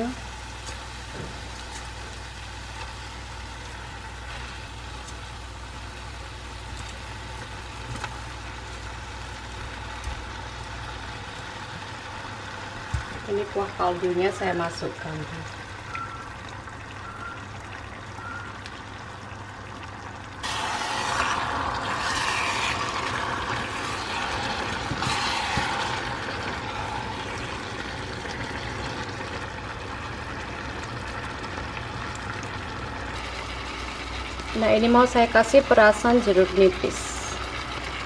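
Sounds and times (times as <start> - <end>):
loud sizzling and bubbling: 0.0 - 38.0
liquid pouring into pan: 16.2 - 34.4.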